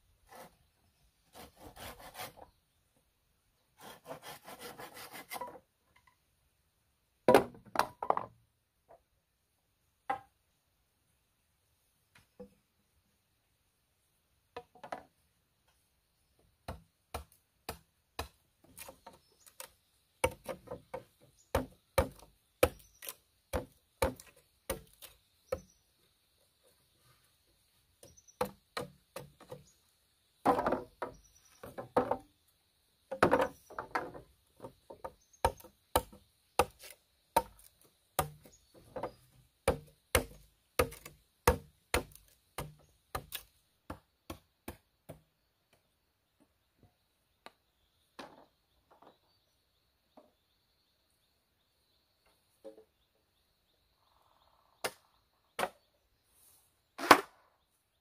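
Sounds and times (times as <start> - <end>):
machete chopping bamboo: 16.6 - 25.7, 28.4 - 29.6, 35.0 - 45.2, 54.8 - 55.8.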